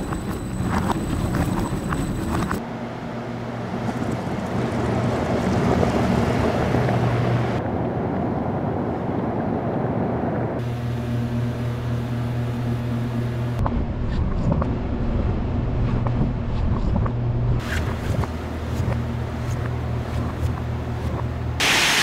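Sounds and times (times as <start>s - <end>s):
tyre and road rumble: 0.0s - 10.6s
car engine hum: 0.0s - 21.7s.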